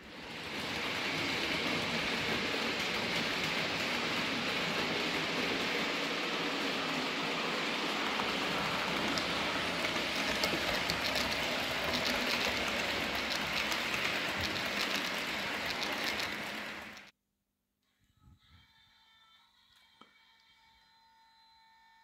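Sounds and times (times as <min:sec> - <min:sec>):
model train rolling on track: 0:00.0 - 0:17.1.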